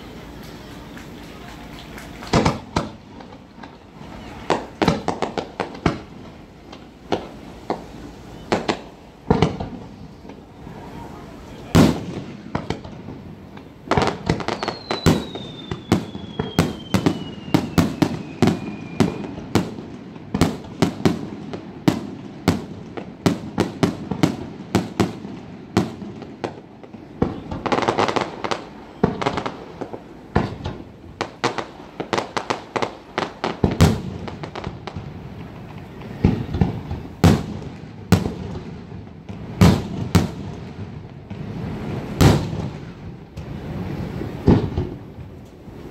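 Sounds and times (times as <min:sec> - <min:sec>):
firework crackling: 0:00.0 - 0:45.9
fireworks bangs with echoes: 0:00.4 - 0:45.9
falling firework whistle: 0:14.2 - 0:19.8.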